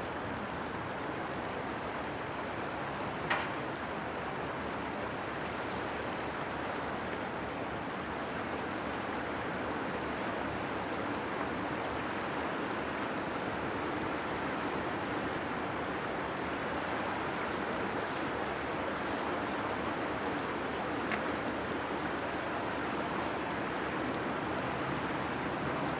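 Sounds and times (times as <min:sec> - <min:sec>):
river water rushing: 0:00.0 - 0:25.9.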